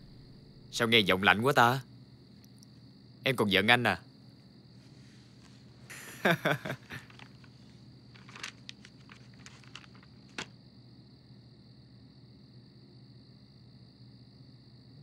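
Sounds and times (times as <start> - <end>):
faint high-pitched hiss: 0.0 - 11.2
magazine and clothing rustling: 5.2 - 10.6
short wordless chuckle: 5.9 - 7.2.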